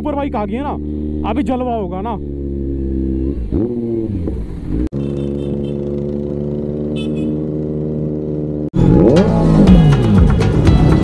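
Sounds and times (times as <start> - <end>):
motorcycle engine running: 0.0 - 11.0
loud music: 8.8 - 11.0.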